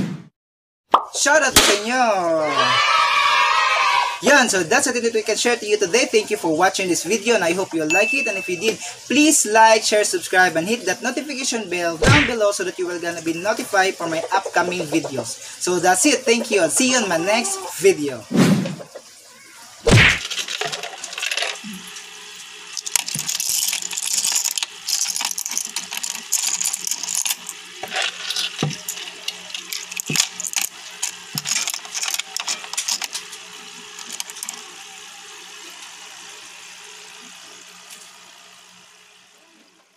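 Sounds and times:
drips clinking on shells: 22.8 - 33.2.

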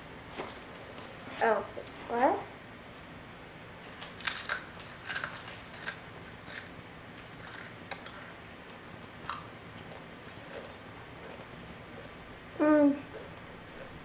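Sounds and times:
potato chip crunching: 4.0 - 8.4, 9.1 - 10.8.

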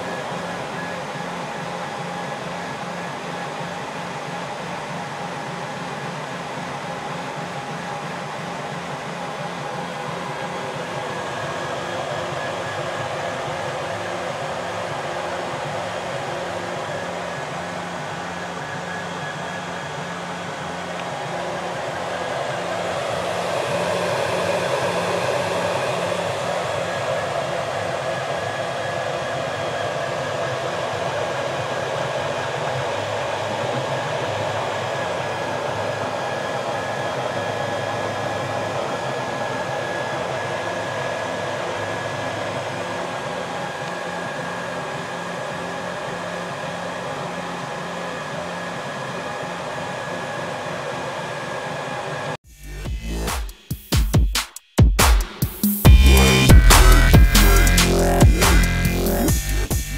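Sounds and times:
stepper motors humming: 55.8 - 59.9.

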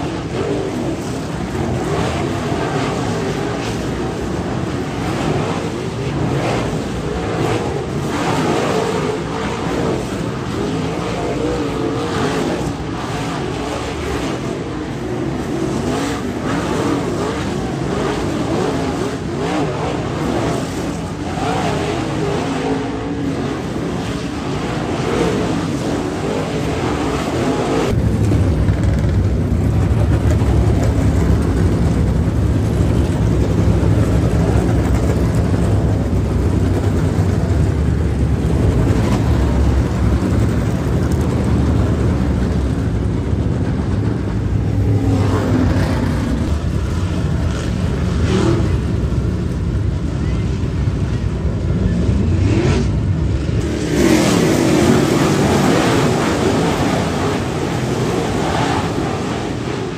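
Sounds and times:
cars passing with low rumble: 0.0 - 59.9
race car engines roaring: 0.0 - 59.9.

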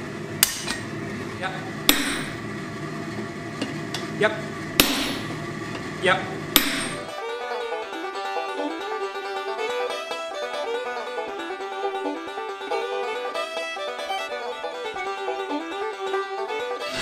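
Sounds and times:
sledgehammer ringing strikes: 1.9 - 2.5, 4.7 - 5.4, 6.6 - 7.1
banjo music: 6.9 - 17.0.

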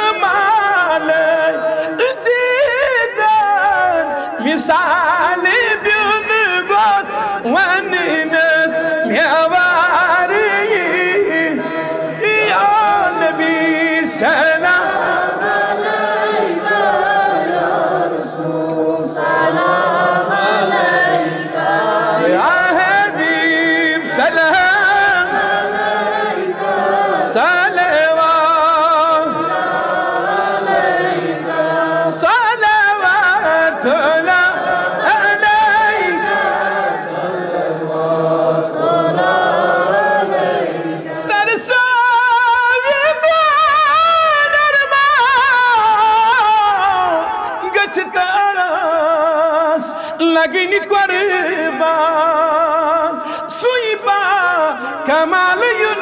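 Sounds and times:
man chanting: 0.0 - 15.6, 22.3 - 25.6, 27.0 - 29.5, 32.0 - 36.8, 41.0 - 56.0.

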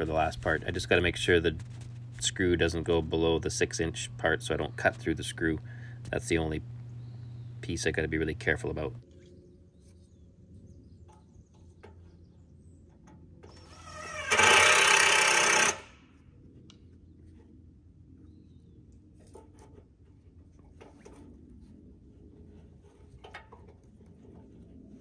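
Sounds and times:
power drill driving a screw: 13.5 - 16.0.

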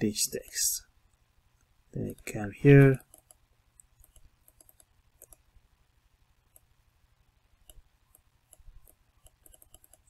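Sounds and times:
low steady hum: 0.0 - 10.0
computer mouse clicks: 2.9 - 5.5, 6.5 - 6.7, 7.6 - 10.0.

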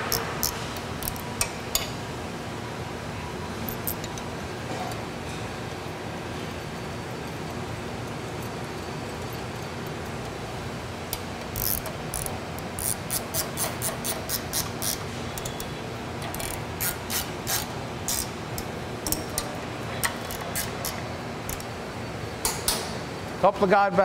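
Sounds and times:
steady low hum: 0.0 - 24.0
ratchet wrench clicking: 0.1 - 1.9, 11.1 - 21.7.

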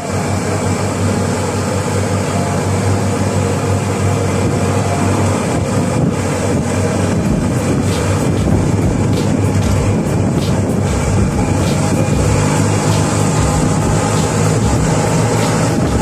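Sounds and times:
golf cart hum: 0.0 - 16.0
road noise: 0.0 - 16.0
wind buffeting microphone: 4.2 - 16.0.

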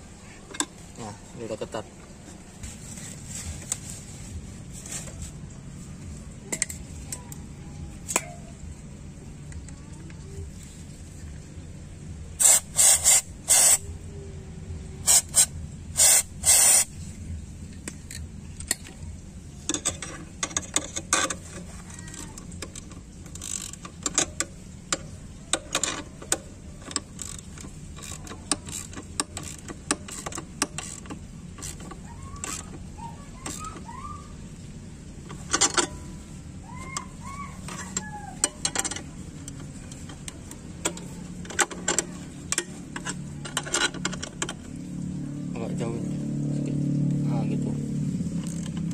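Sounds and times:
hand wrench clicking: 12.4 - 13.9, 15.0 - 16.9, 19.7 - 33.9, 36.8 - 44.7.

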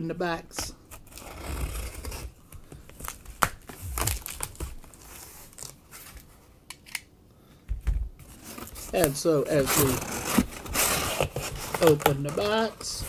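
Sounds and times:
tape and cardboard crinkling: 0.8 - 6.4, 8.2 - 13.0
box cutter slitting tape: 0.9 - 2.4, 8.3 - 12.8.

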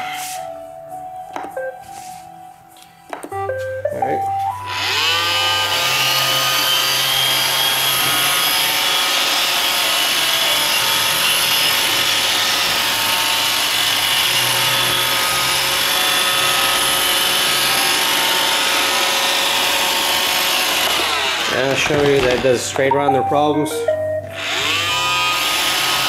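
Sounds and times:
robot vacuum whining: 4.7 - 22.8, 24.3 - 26.0.

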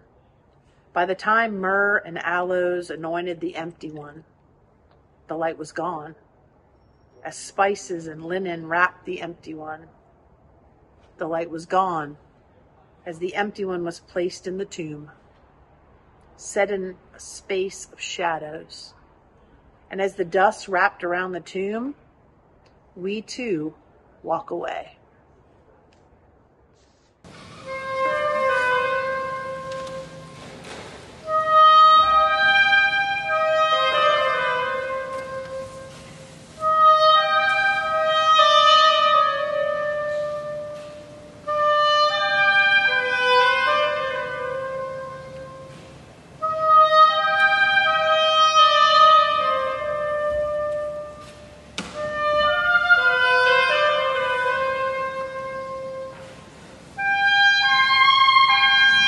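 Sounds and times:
solo woodwind melody: 27.4 - 59.0.

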